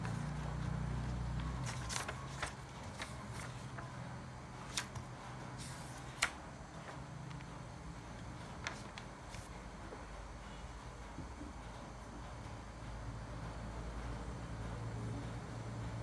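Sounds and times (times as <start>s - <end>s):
paper rustling: 0.0s - 3.9s, 4.6s - 7.0s, 8.4s - 9.5s.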